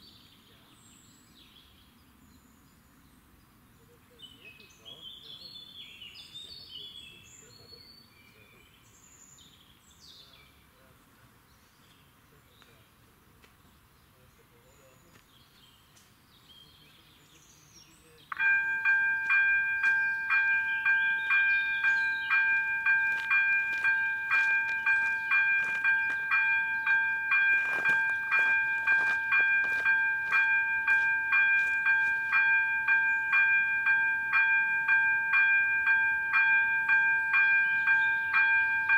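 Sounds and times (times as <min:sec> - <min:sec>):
birds chirping: 0:00.0 - 0:38.9
crossing warning bell ringing: 0:18.3 - 0:38.9.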